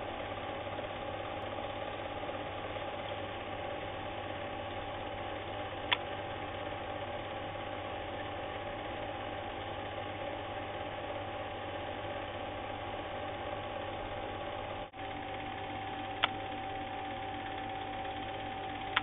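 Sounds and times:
film projector motor whirring: 0:00.0 - 0:19.0
sharp click: 0:05.9 - 0:06.1.

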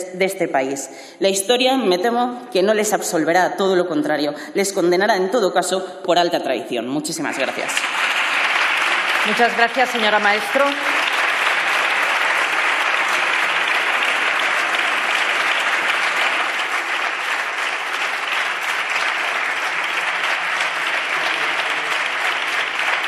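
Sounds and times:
crowd applauding: 0:07.4 - 0:23.0.

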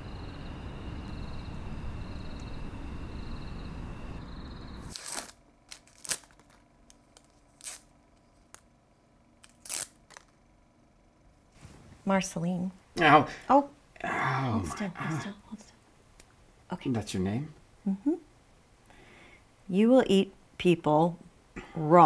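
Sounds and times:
paper wrapper tearing: 0:04.9 - 0:07.9, 0:09.4 - 0:10.3.

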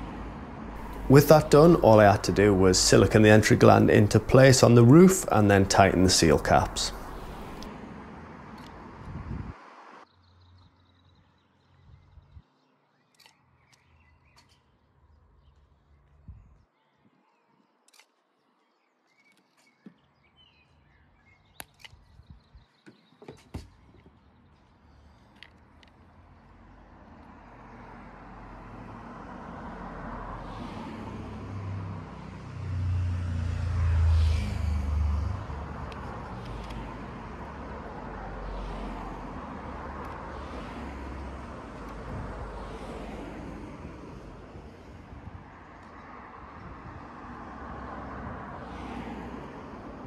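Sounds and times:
vehicle passing: 0:00.0 - 0:10.0, 0:26.4 - 0:50.0.

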